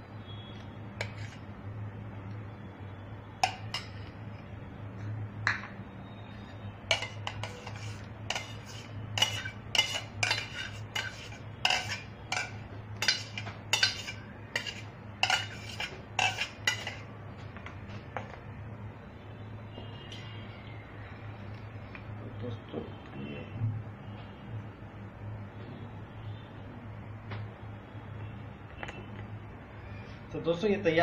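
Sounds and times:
metal spoons clinking and scraping: 0:01.0 - 0:01.4, 0:03.4 - 0:04.2, 0:06.9 - 0:17.1.

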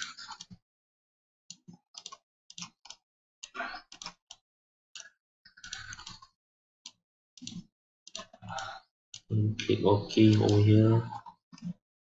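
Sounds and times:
computer mouse clicking: 0:01.5 - 0:04.4, 0:05.0 - 0:06.3, 0:06.9 - 0:11.8.

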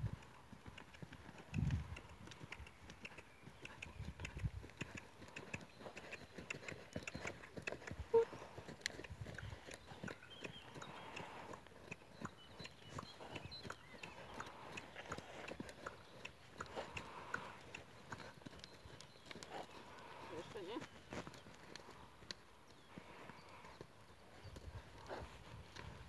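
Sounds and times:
horse hooves cantering on sand: 0:00.0 - 0:26.0.

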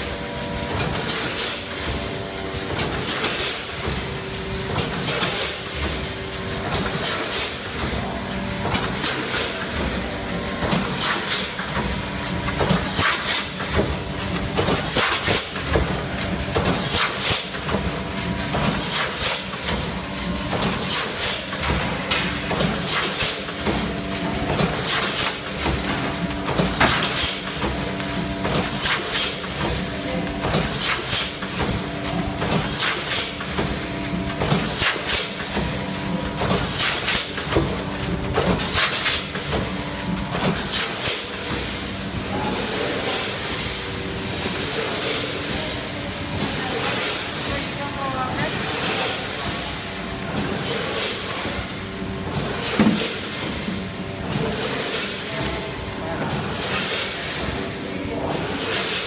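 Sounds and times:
machine mechanical hum: 0:00.0 - 0:59.0.

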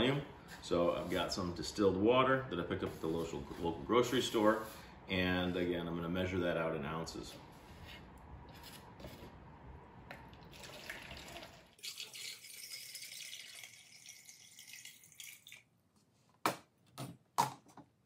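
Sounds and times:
water pouring into plastic cup: 0:10.3 - 0:15.7
water trickling through funnel: 0:10.3 - 0:15.7.

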